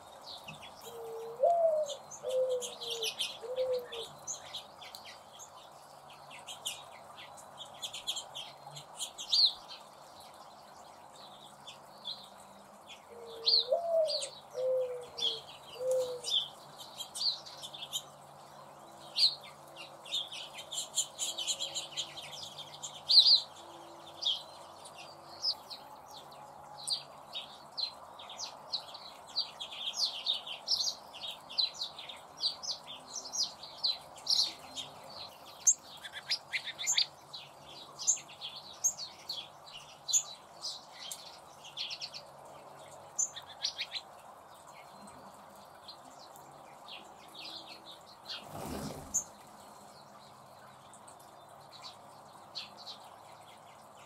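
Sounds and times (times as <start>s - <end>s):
small birds chirping: 0.0s - 54.0s
dove cooing: 0.8s - 4.2s, 13.1s - 16.4s.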